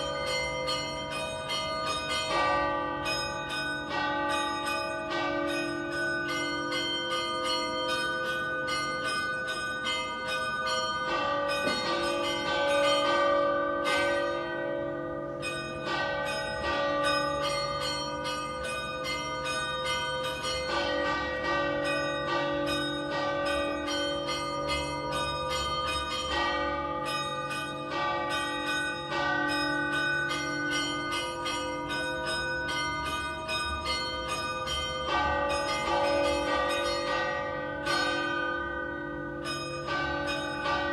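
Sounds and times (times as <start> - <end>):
church bells ringing: 0.0 - 40.9.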